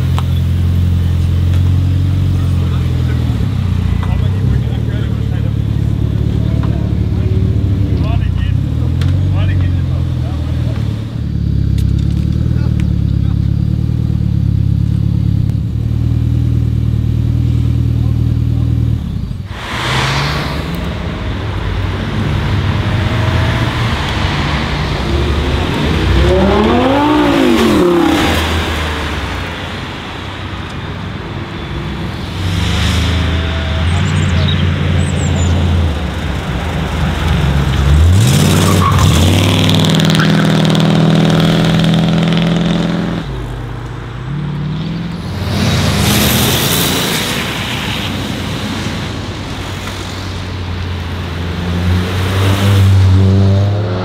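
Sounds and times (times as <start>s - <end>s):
sports cars revving past: 19.5s - 54.0s.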